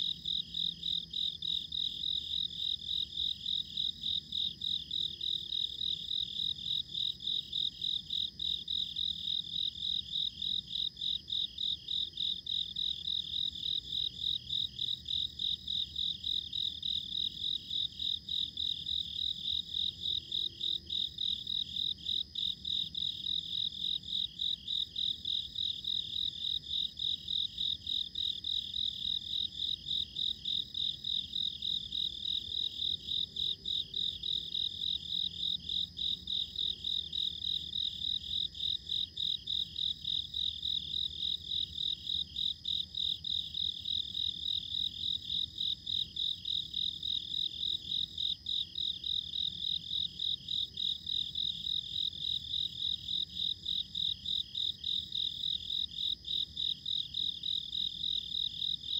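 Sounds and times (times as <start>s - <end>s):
crickets chirping: 0.0s - 58.9s.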